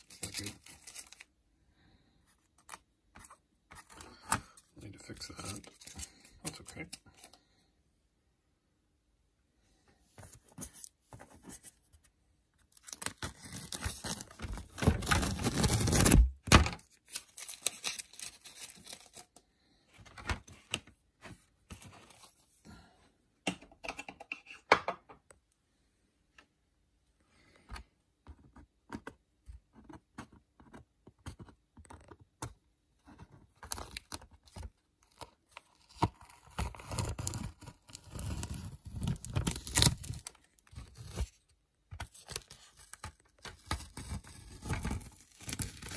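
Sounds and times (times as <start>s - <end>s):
tape ripping and crinkling: 12.7s - 19.3s, 35.8s - 41.4s, 42.0s - 45.9s.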